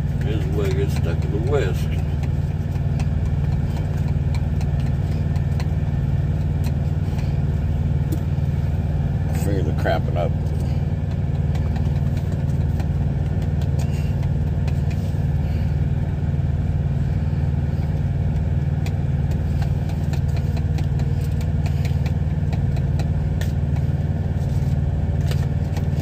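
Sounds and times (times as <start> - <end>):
diesel engine idling: 0.0 - 26.0.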